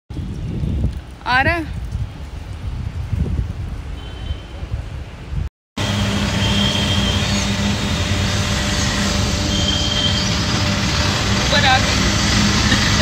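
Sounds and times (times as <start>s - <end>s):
wind on microphone: 0.1s - 5.5s
road noise: 0.1s - 13.0s
street noise: 0.1s - 13.0s
auto-rickshaw engine droning: 5.8s - 13.0s.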